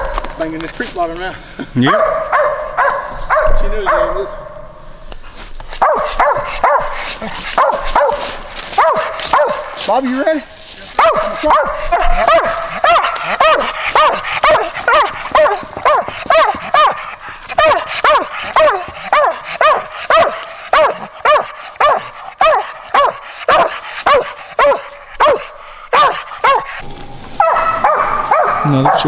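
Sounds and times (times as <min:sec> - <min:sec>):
dog barking: 0:01.9 - 0:04.5, 0:05.7 - 0:09.8, 0:11.0 - 0:26.8, 0:27.4 - 0:29.0.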